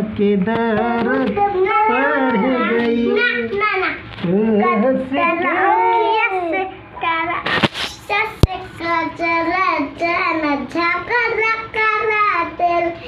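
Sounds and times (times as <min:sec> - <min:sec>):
person singing unaccompanied: 0:00.0 - 0:06.5.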